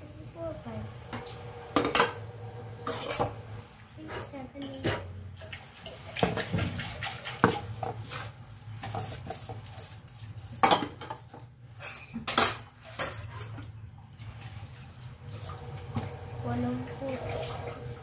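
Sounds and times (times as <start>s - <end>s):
dishes clattering in a sink: 1.1s - 3.4s, 4.5s - 9.7s, 10.5s - 14.7s.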